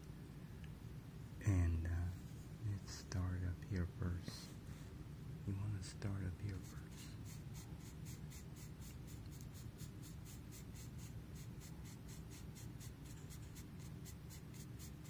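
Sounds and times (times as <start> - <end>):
pencil scratching on paper: 6.5 - 15.0.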